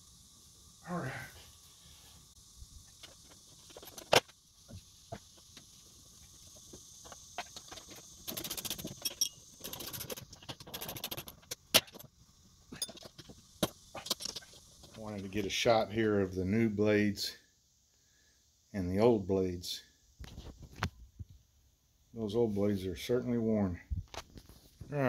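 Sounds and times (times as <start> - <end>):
ratchet wrench clicking: 7.4 - 12.0
metal parts clinking on steel deck: 7.5 - 12.1, 12.7 - 13.2.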